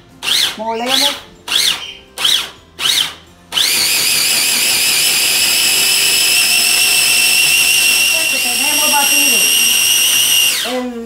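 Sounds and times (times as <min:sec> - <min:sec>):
blender motor whining: 0:03.6 - 0:10.8.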